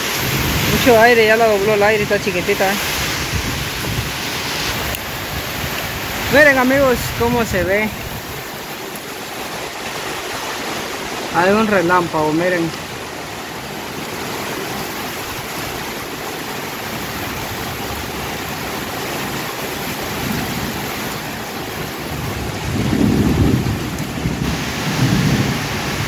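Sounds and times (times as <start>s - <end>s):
heavy rain: 0.0s - 26.0s
strong wind: 0.0s - 26.0s.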